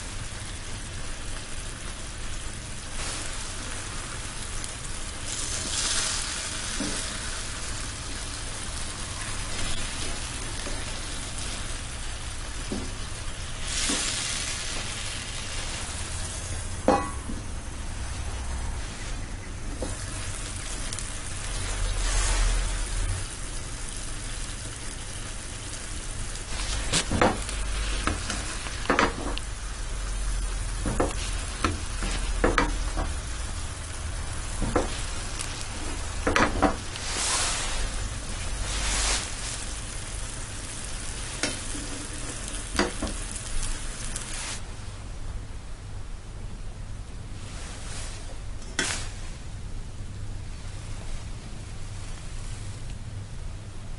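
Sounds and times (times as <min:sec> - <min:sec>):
chicken sizzling in sauce: 0:00.0 - 0:44.7, 0:47.4 - 0:49.4
metal ladle knocking on pan: 0:16.9 - 0:17.4.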